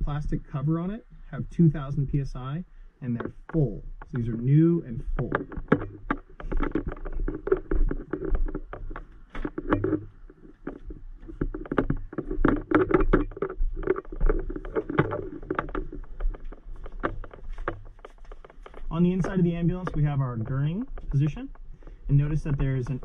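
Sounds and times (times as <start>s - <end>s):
footsteps: 0.0s - 23.0s
low hum: 0.0s - 23.0s
camera handling knocks and rustles: 5.1s - 20.0s.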